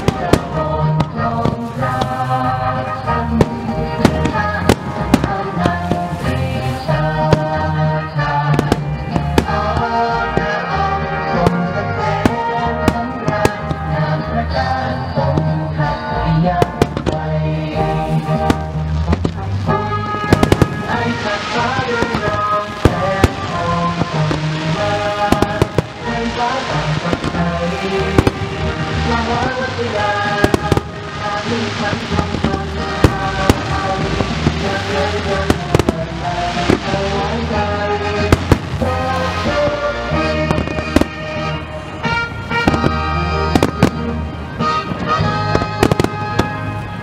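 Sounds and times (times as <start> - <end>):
loud music with heavy bass: 0.0 - 47.0
firework shells bursting: 18.0 - 41.6.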